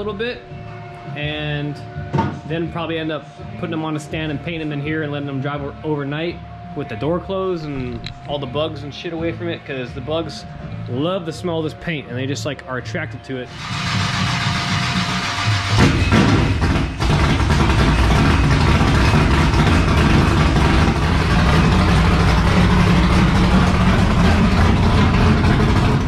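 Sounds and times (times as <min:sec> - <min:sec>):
race truck engine rumbling: 0:13.5 - 0:26.0.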